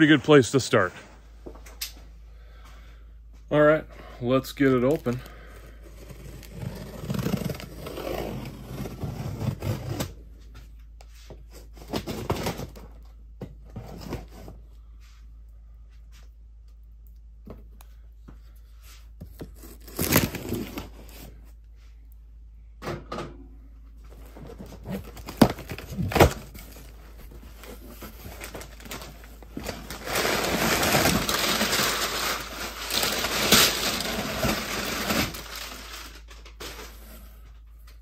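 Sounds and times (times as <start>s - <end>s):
packaging tearing and rustling: 4.8s - 10.2s, 19.5s - 21.3s, 24.6s - 37.1s.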